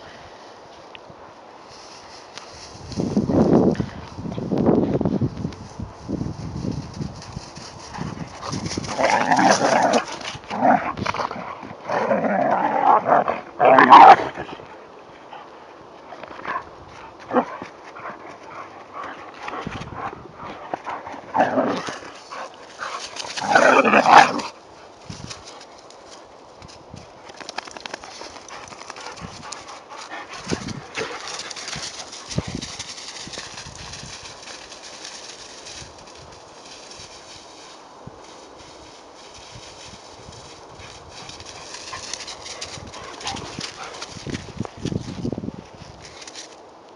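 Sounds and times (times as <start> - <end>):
dogs growling: 7.9 - 14.7, 17.2 - 24.6, 28.5 - 32.9, 41.5 - 44.2
footsteps crunching through snow: 28.0 - 46.6.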